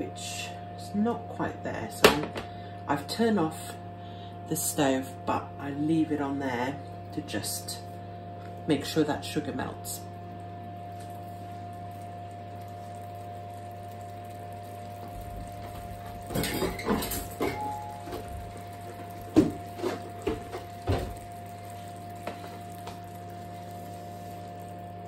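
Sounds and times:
steady hum: 0.0 - 25.0
sugar syrup bubbling and popping: 10.0 - 25.0.

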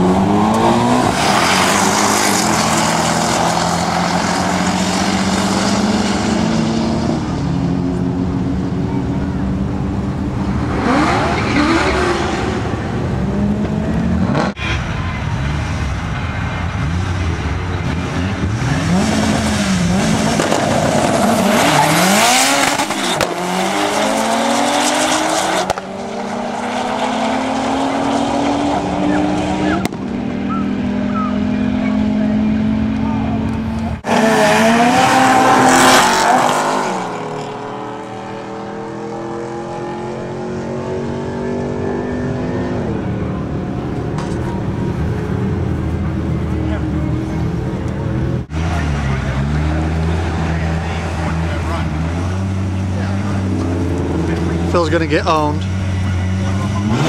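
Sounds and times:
car engines accelerating hard: 0.0 - 57.0.

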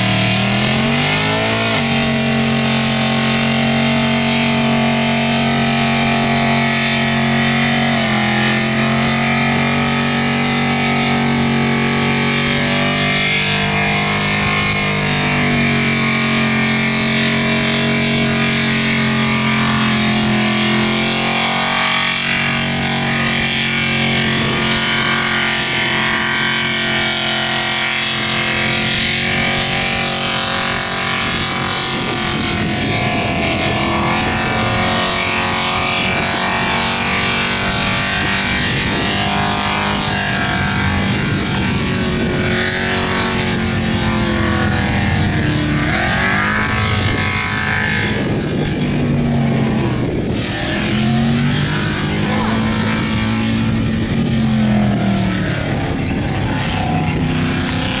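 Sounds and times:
car engine at high revs: 0.0 - 58.0.

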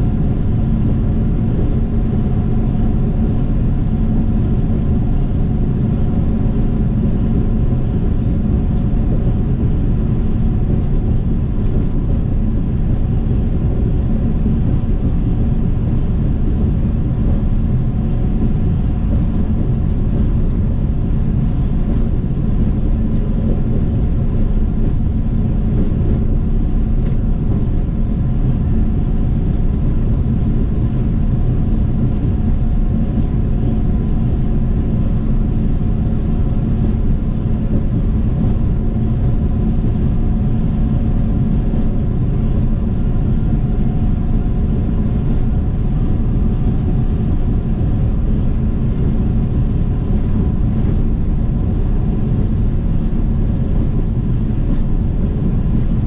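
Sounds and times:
car tyre and engine rumble: 0.0 - 56.0.

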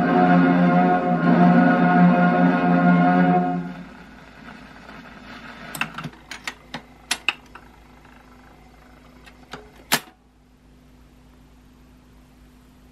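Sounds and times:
low motor hum: 0.0 - 9.9.

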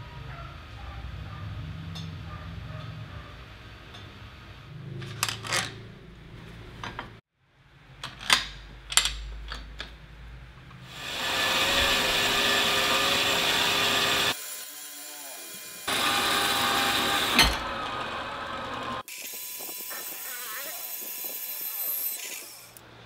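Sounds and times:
metallic clicks and clanks: 8.0 - 10.0
metal-cutting saw cutting steel: 10.9 - 22.8.

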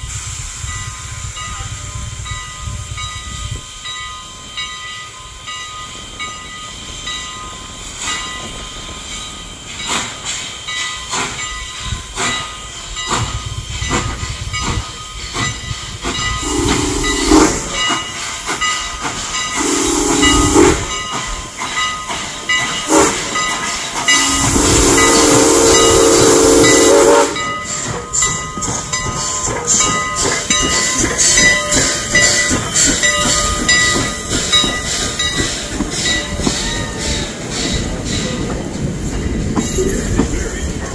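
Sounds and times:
steam locomotive chuffing: 0.0 - 40.9
train wheels clattering on rails: 0.6 - 40.9
steam whistle blasts: 16.4 - 18.0, 19.5 - 21.1, 22.9 - 23.4, 24.1 - 27.8.

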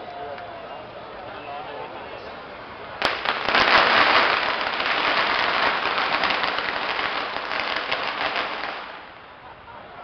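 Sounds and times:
fireworks crackling: 3.0 - 9.5.

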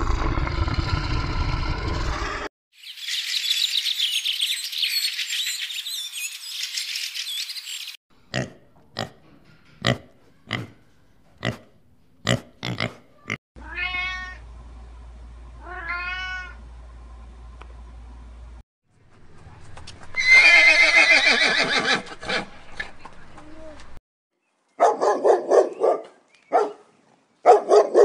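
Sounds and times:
high chirping calls: 2.8 - 8.0
cat meowing: 13.6 - 14.4, 15.6 - 16.6.

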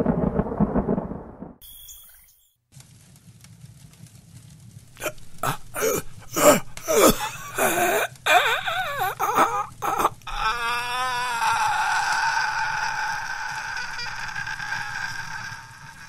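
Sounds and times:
man moaning and wailing in pain: 5.0 - 16.0.

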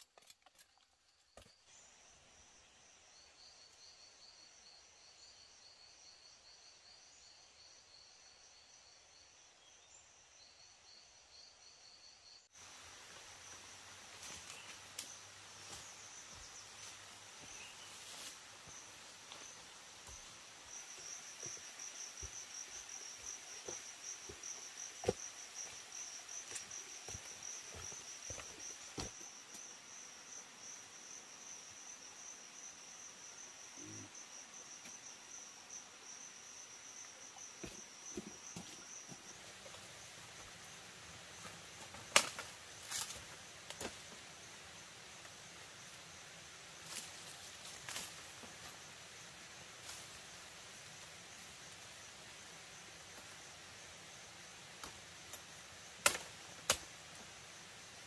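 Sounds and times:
insects trilling: 0.1 - 58.0.

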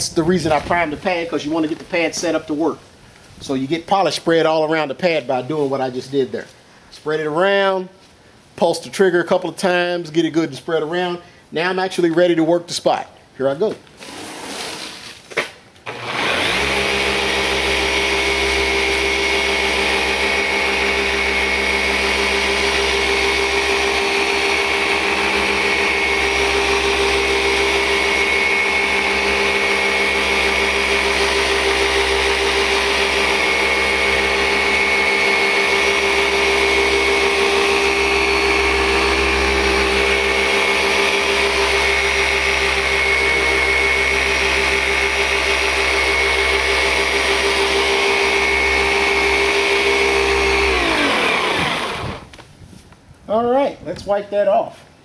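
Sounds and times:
polisher motor humming and whining: 15.9 - 52.3.

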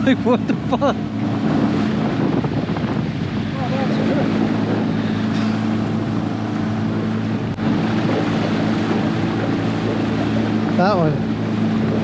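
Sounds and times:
boat motor humming: 0.0 - 12.0
wind and water rushing: 0.0 - 12.0.

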